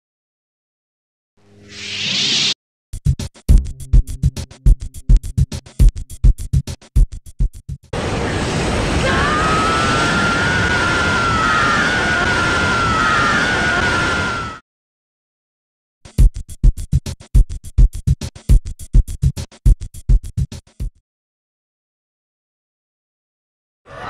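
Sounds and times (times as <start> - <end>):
music with fast drumbeat: 3.0 - 7.9, 16.1 - 21.0
loud steady rushing noise: 8.0 - 14.5.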